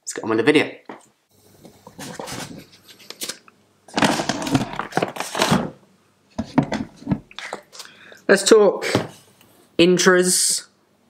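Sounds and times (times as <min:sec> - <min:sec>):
items rustling and clattering: 0:01.7 - 0:07.9
rummaging in cupboard: 0:04.0 - 0:05.7, 0:06.4 - 0:07.3.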